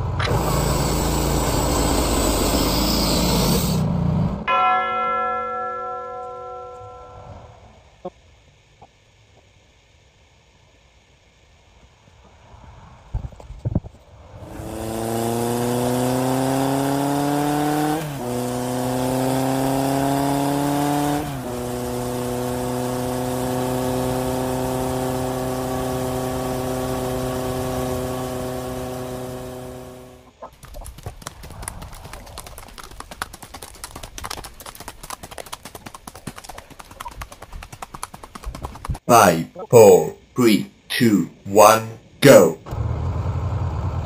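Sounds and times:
engine accelerating: 0.0 - 4.5, 14.4 - 39.0, 42.7 - 44.0.

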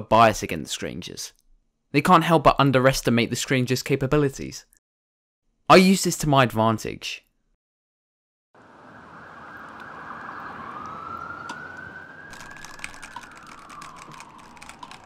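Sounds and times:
siren wailing: 8.6 - 15.0
keyboard typing: 12.3 - 15.0.

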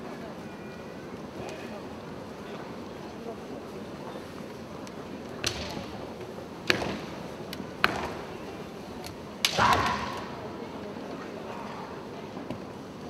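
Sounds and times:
hall background noise: 0.0 - 13.0
bamboo swords clacking: 9.0 - 10.3.

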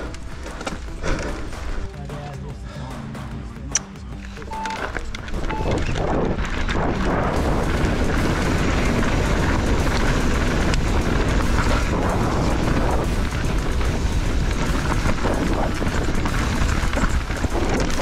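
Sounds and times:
bike rattling and knocking: 0.0 - 2.5, 4.4 - 18.0
short electronic beep: 4.4 - 5.9
tyre noise: 4.4 - 18.0
wind rushing over microphone: 5.2 - 18.0.

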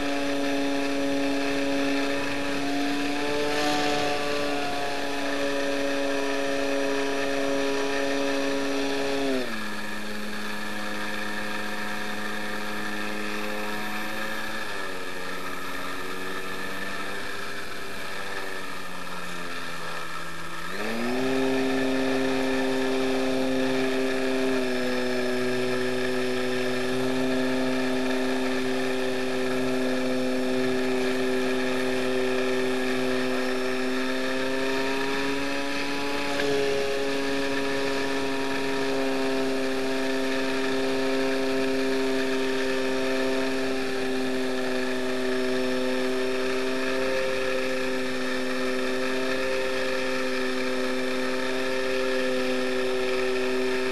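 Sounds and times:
electric motors high whine: 0.0 - 53.9.

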